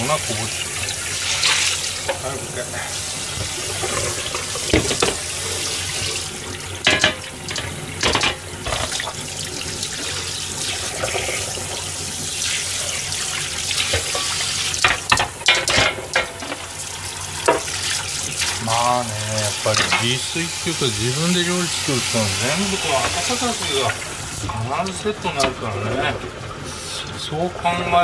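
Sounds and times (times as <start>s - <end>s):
tap water splashing onto metal pan: 3.3s - 20.4s.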